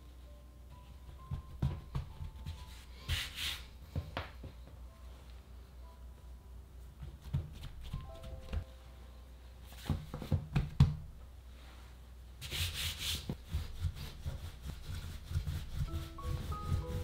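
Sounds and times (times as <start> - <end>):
rolling pin rolling dough: 0.8 - 4.6, 12.4 - 17.0.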